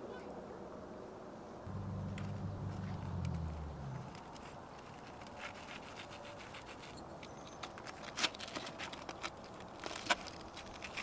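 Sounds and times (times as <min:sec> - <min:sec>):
crispy crust crackling: 0:07.8 - 0:11.0.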